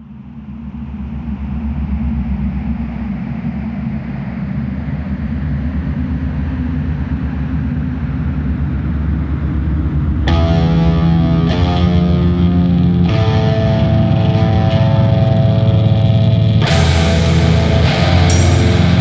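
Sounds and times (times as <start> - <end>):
low rumbling drone: 0.0 - 19.0
noisy hiss: 16.6 - 19.0.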